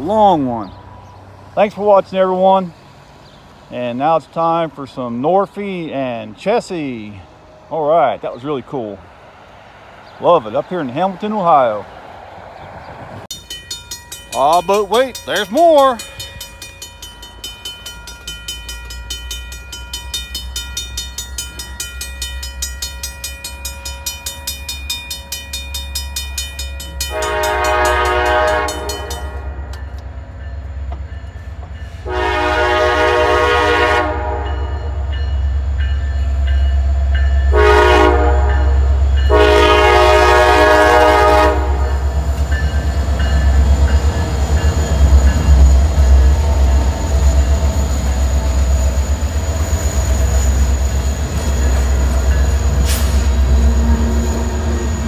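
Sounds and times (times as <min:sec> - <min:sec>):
locomotive air horn: 0:27.1 - 0:29.7, 0:31.9 - 0:35.0, 0:37.5 - 0:42.1.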